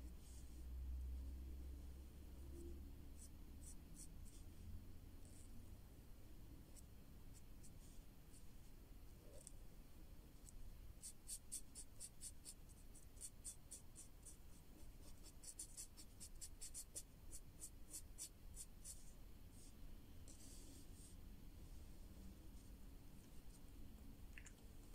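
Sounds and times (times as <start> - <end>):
marker scratching on paper: 3.2 - 4.5, 11.0 - 21.2.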